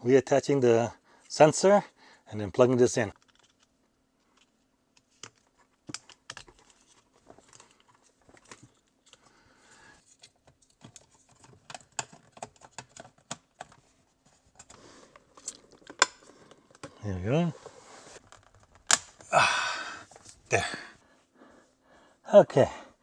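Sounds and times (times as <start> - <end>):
small plastic parts clicking: 3.1 - 3.7
soft rustle: 17.3 - 18.3.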